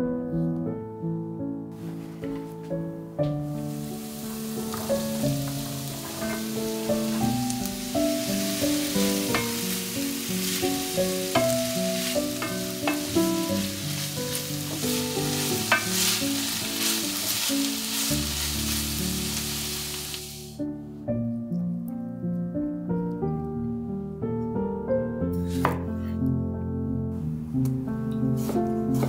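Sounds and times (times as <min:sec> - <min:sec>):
vegetables sizzling in a pan: 0:03.4 - 0:20.6
wooden spatula scraping a pan: 0:03.7 - 0:19.4.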